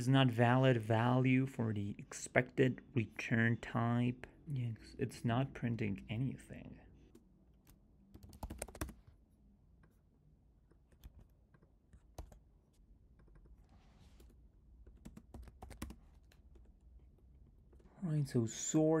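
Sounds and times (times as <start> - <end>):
faint keyboard typing: 7.0 - 9.2, 10.6 - 17.9.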